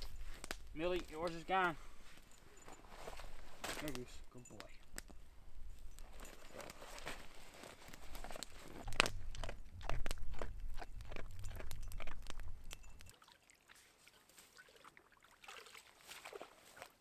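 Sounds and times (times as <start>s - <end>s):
dog crunching dry kibble: 6.1s - 13.1s.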